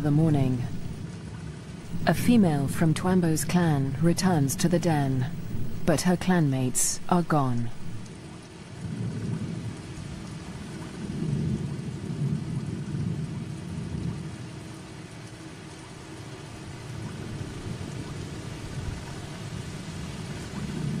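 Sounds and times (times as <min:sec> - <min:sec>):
steady rain falling: 0:00.0 - 0:21.0
low rumble of thunder: 0:08.7 - 0:14.8, 0:16.8 - 0:21.0.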